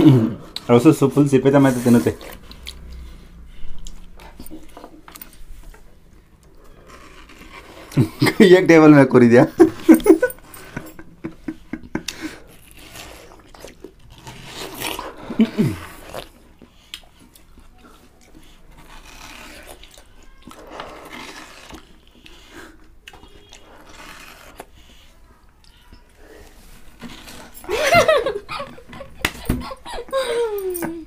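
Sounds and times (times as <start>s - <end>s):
wet biting and slurping: 2.2s - 3.0s, 12.0s - 25.7s.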